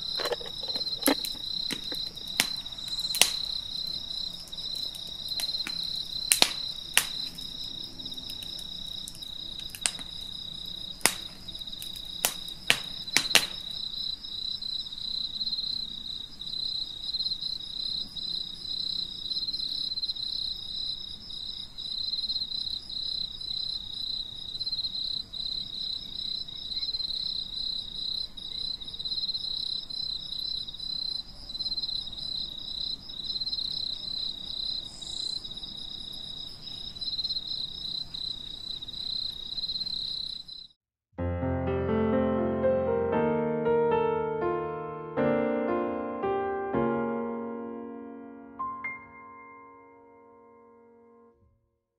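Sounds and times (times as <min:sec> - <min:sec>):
insects trilling: 0:00.0 - 0:40.8
sharp taps: 0:12.3 - 0:13.6.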